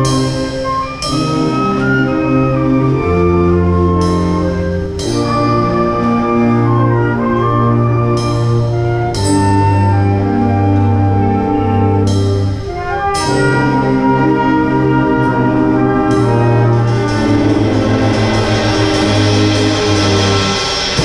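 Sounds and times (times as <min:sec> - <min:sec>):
brass chords: 0:00.0 - 0:21.0
tuba bass line: 0:00.0 - 0:21.0
cymbal crashes: 0:17.4 - 0:21.0.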